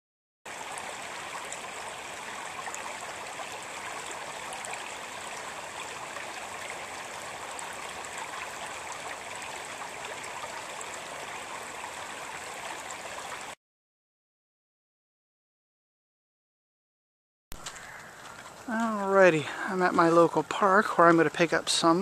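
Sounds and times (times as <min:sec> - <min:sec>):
small water splashes: 0:00.5 - 0:13.6
stream babbling over stones: 0:00.5 - 0:13.6, 0:17.6 - 0:22.0.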